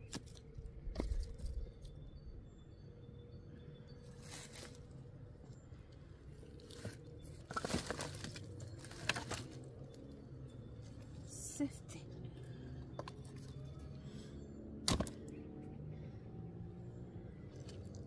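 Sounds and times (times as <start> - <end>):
dry wood crunching: 4.2 - 5.0, 5.9 - 10.2, 14.8 - 15.4.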